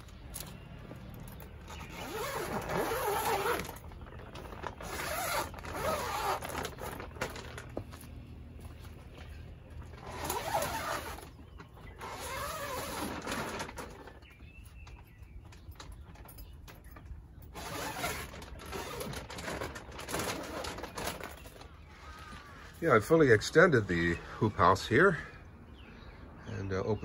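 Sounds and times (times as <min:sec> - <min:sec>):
plastic sheeting rustling: 0:01.7 - 0:14.4, 0:17.5 - 0:21.8.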